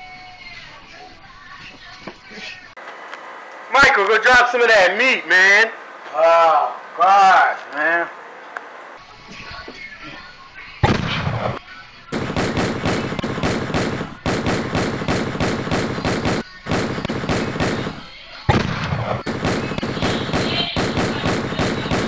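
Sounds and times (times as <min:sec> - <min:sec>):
automatic gunfire bursts: 0:12.2 - 0:22.0.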